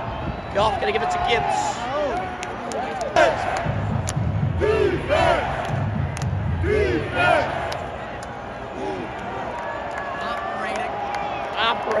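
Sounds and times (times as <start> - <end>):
crowd rumble: 1.7 - 10.0
crowd shouting together: 3.1 - 3.8, 4.5 - 5.8, 6.6 - 8.0.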